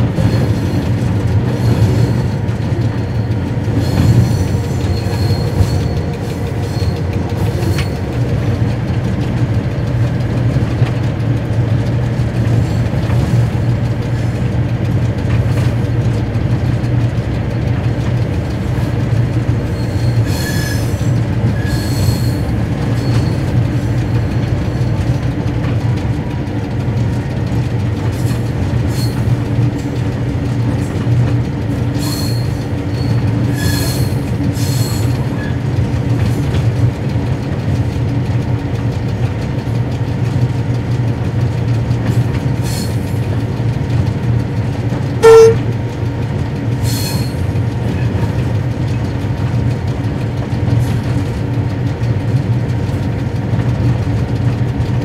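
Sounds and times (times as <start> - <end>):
diesel engine drone: 0.0 - 55.0
rail noise: 0.0 - 55.0
wheel squeals: 1.5 - 8.1, 19.6 - 24.9, 28.1 - 29.4, 31.9 - 35.6, 45.2 - 45.6.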